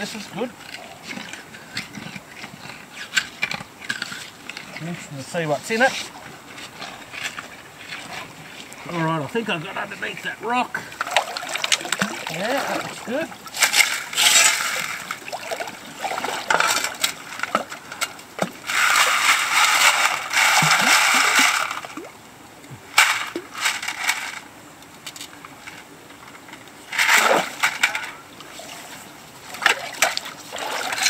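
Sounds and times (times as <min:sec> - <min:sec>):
water splashing and sloshing: 0:00.0 - 0:22.2, 0:25.6 - 0:31.0
shovel digging gravel: 0:11.8 - 0:15.4, 0:18.4 - 0:21.9, 0:26.9 - 0:28.2.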